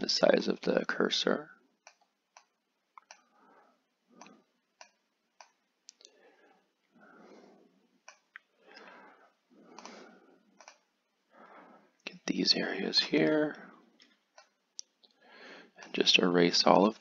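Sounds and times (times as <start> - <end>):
faint computer mouse clicks: 1.8 - 3.3, 4.2 - 6.2, 10.6 - 10.9
soft breathing: 3.1 - 4.7, 5.9 - 12.8, 13.5 - 16.1.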